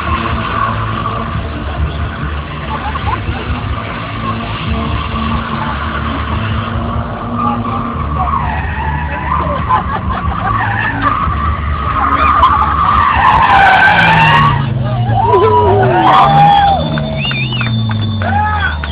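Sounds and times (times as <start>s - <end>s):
car engine running under power: 0.0s - 18.9s
tyres squealing: 5.2s - 18.9s.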